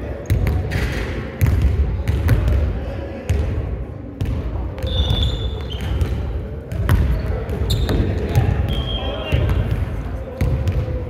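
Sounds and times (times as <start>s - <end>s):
basketball bouncing on gym floor: 0.2s - 0.8s, 1.4s - 2.6s, 4.2s - 11.0s.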